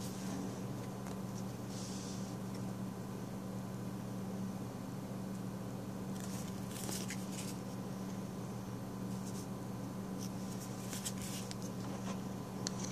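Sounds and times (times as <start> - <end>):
steady low hum: 0.0 - 12.9
cards sliding and swishing: 6.2 - 7.7, 10.2 - 12.2.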